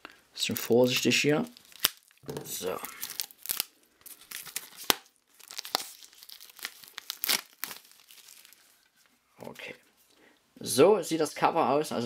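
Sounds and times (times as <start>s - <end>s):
plastic film tearing and crinkling: 0.4s - 9.0s.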